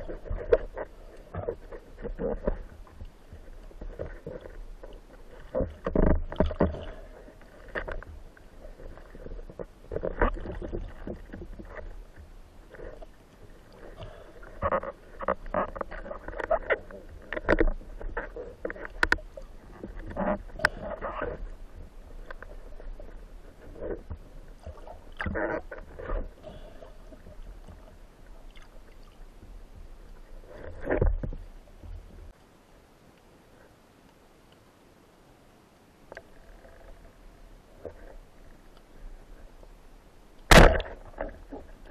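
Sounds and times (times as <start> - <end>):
water sloshing: 0.0 - 32.4, 36.1 - 41.9
muffled underwater rumble: 0.0 - 34.4, 36.1 - 41.9
speargun muffled thud: 40.5 - 41.0.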